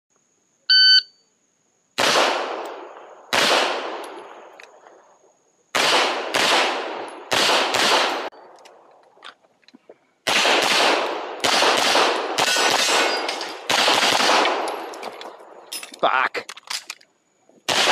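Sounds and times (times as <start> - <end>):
shot timer beep: 0.7 - 1.2
handgun firing sharp shots: 2.0 - 4.2, 5.7 - 8.3, 10.3 - 14.9, 17.7 - 17.9.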